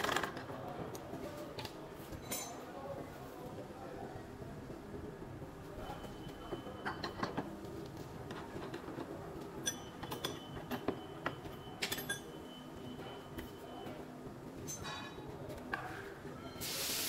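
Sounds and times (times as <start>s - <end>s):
light metal clicks and clinks: 2.2s - 2.7s, 9.6s - 12.4s, 14.6s - 15.2s.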